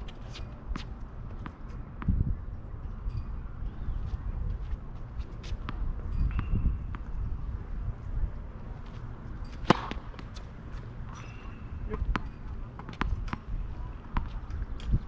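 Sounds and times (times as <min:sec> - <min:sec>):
low wind rumble: 0:00.0 - 0:15.0
ball bouncing on court: 0:09.6 - 0:10.3
racket hitting tennis ball: 0:09.6 - 0:10.8.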